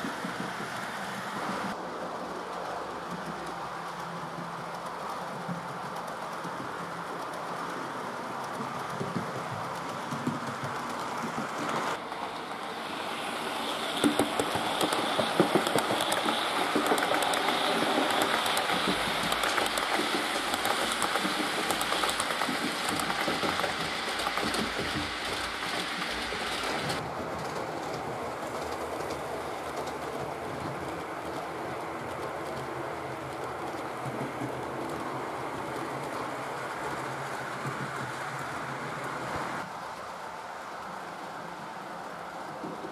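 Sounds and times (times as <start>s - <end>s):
wheels clicking over rail joints: 0.0s - 42.9s
model train motor humming: 12.2s - 27.0s.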